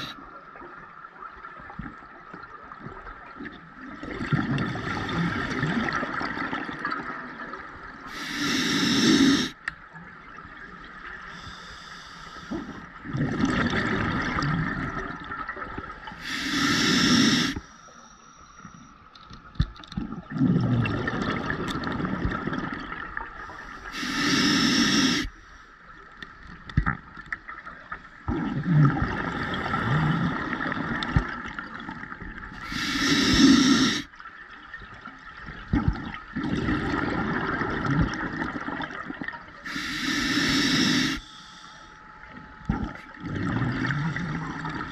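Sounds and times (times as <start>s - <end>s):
exhaled air bubbling: 3.8s - 9.6s, 12.5s - 17.6s, 20.0s - 25.3s, 28.2s - 34.2s, 35.4s - 41.3s, 42.0s - 44.9s
regulator inhale hiss: 8.1s - 9.6s, 11.3s - 12.9s, 16.2s - 18.9s, 23.4s - 25.8s, 32.6s - 34.1s, 39.6s - 42.0s.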